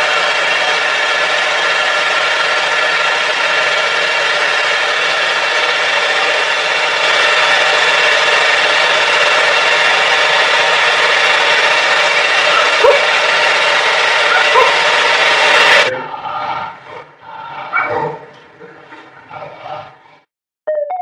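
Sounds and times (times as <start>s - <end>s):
hair dryer blowing: 0.0s - 15.9s.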